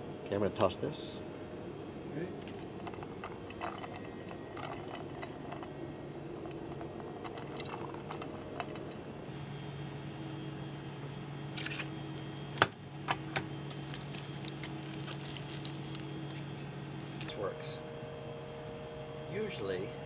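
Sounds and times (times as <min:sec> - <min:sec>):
ventilation hum: 0:00.0 - 0:20.0
food packaging crinkling: 0:13.7 - 0:17.3.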